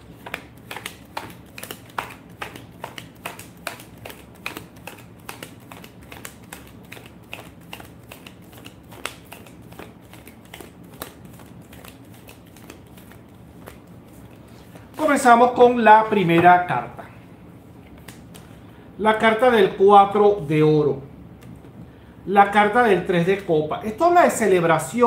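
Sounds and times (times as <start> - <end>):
cards being shuffled by hand: 0.0 - 15.3, 17.8 - 18.6.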